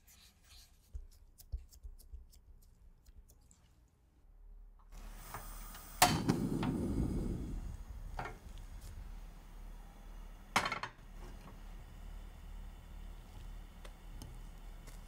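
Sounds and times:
burner flame rush: 5.0s - 9.1s.

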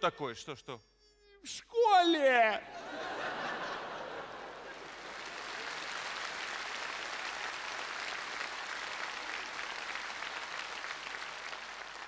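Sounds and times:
audience laughter: 2.7s - 5.3s
audience applauding: 3.3s - 12.0s.

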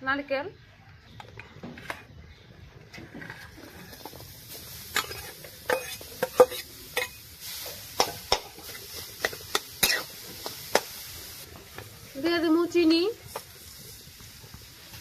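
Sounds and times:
metal spatula scraping metal pan: 4.8s - 10.8s.

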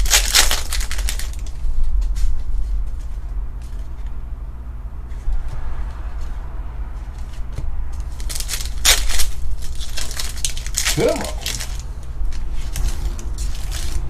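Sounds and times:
foil pack crinkling and tearing: 0.0s - 3.9s, 8.0s - 14.0s
steady low hum: 0.0s - 14.0s.

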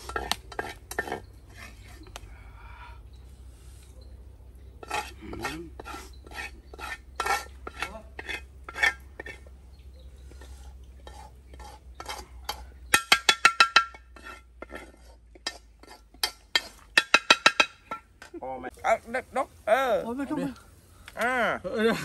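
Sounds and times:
metal spatula scraping wok: 0.0s - 2.0s, 4.8s - 9.5s, 10.3s - 18.0s.

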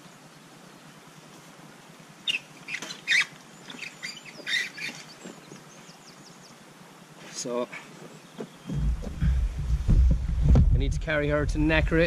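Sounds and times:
faint bird chirps: 2.2s - 6.8s, 7.4s - 9.6s.

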